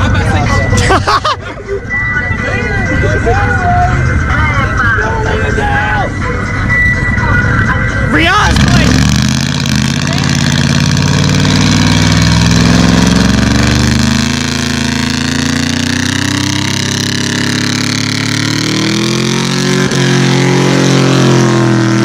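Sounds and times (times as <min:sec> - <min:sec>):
tires spinning on asphalt: 0:08.2 - 0:22.0
truck engine revving hard: 0:08.2 - 0:22.0.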